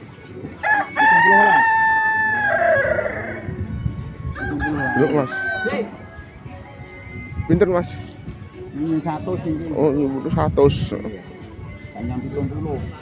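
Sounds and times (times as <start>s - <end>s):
rooster crowing: 0.6s - 3.6s, 4.4s - 6.0s.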